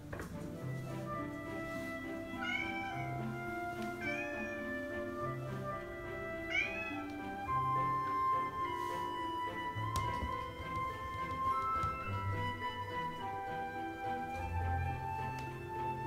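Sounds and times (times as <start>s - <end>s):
background music: 0.0s - 16.0s
cat meowing: 2.3s - 5.3s, 6.4s - 7.4s.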